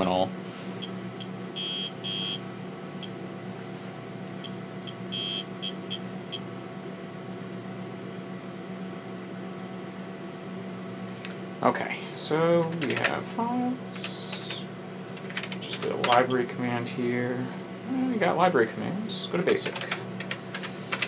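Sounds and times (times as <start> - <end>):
floppy drive buzzes and ticks: 0.0 - 3.2, 4.3 - 6.6, 13.9 - 16.9, 19.1 - 21.0
computer fan and drive humming: 0.0 - 21.0.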